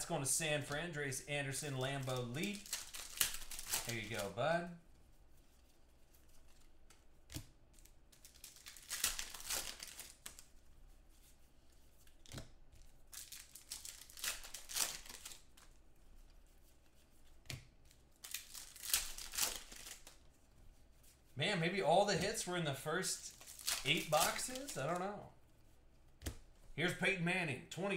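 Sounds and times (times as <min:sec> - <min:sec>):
foil packs tearing and crinkling: 0:01.9 - 0:04.3, 0:08.2 - 0:10.4, 0:13.1 - 0:15.5, 0:18.2 - 0:20.1, 0:23.3 - 0:25.0.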